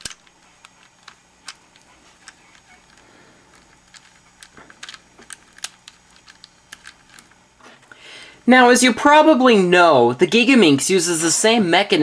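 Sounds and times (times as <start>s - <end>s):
plastic puzzle pieces clicking: 0.0s - 7.4s.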